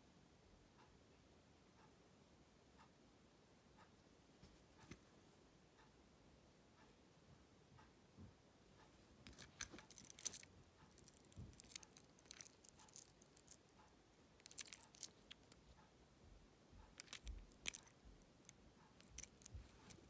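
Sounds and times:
plastic toy clicking and jingling: 9.2s - 13.8s, 14.4s - 15.7s, 16.9s - 20.0s.

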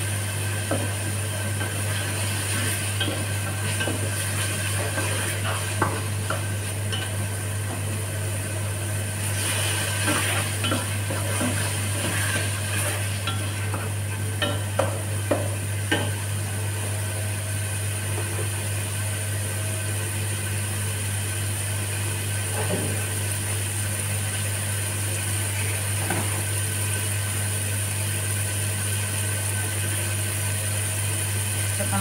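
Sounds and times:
machine humming: 0.0s - 24.4s.

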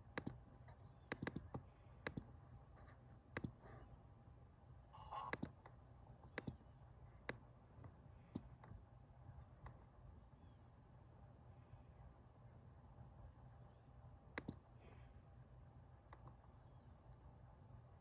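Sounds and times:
faint low room hum: 0.0s - 18.0s
laptop pointer clicks: 0.1s - 0.4s, 1.1s - 2.3s, 3.3s - 3.6s, 5.2s - 6.6s, 14.3s - 14.6s.

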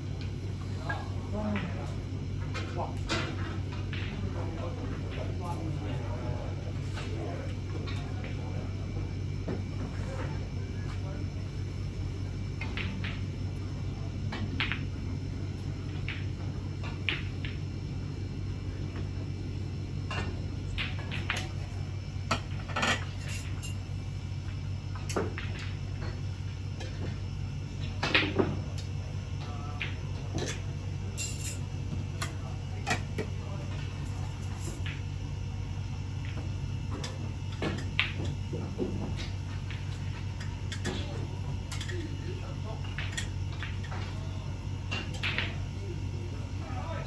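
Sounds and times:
steady low hum: 0.0s - 47.0s
snooker balls clicking: 15.6s - 17.6s.

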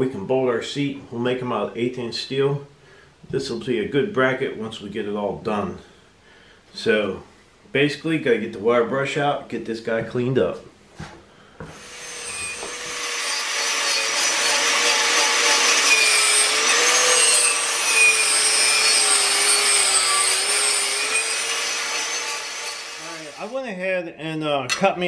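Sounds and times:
angle grinder motor whine: 11.7s - 23.4s.

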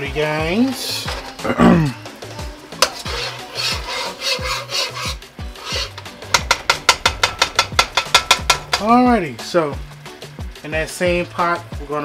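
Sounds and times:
rasping scraper percussion: 0.9s - 9.0s
low bassline: 1.4s - 2.6s.

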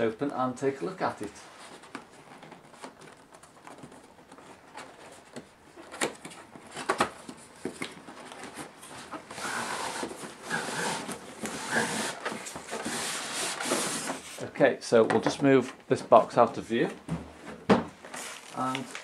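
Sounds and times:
cardboard sliding hiss: 8.9s - 14.5s.

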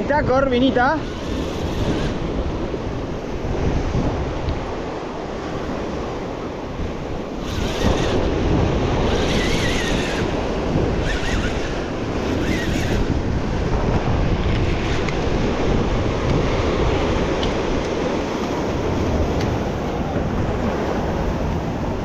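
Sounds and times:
wind buffeting microphone: 0.0s - 22.0s
surf breaking on shore: 0.5s - 22.0s.

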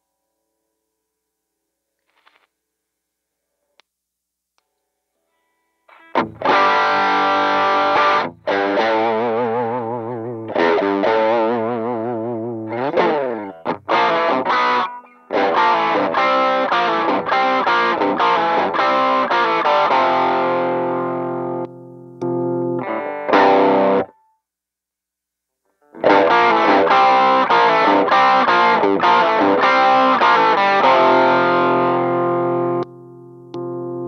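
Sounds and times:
distorted electric guitar: 5.9s - 24.2s, 25.8s - 34.0s.

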